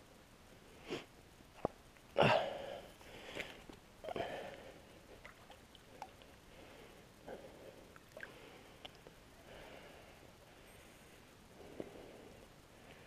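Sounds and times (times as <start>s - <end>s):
soft breaths: 2.2s - 13.0s
faint water ticks: 4.4s - 7.0s, 7.8s - 9.2s.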